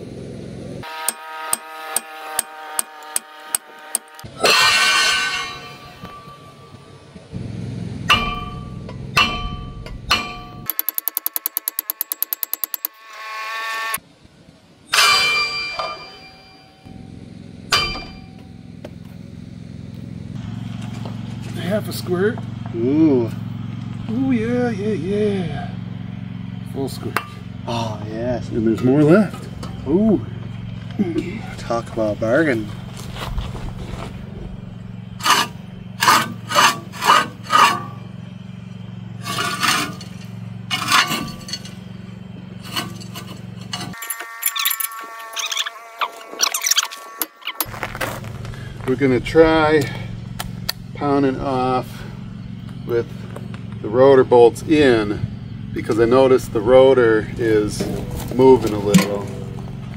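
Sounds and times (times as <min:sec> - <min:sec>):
hammer clanging on metal: 0:01.0 - 0:06.6, 0:08.0 - 0:12.9, 0:14.9 - 0:18.6, 0:39.3 - 0:41.9, 0:58.9 - 0:59.5
lug nuts clinking and scraping: 0:01.0 - 0:07.2, 0:08.0 - 0:13.0, 0:14.9 - 0:22.8, 0:25.8 - 0:45.7, 0:57.2 - 0:59.9
low steady hum: 0:03.3 - 0:12.8, 0:14.0 - 0:44.0, 0:47.6 - 0:59.9.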